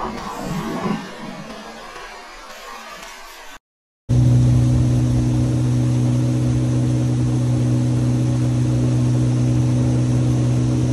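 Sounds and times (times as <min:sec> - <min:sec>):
outboard motor running: 0:04.1 - 0:10.9.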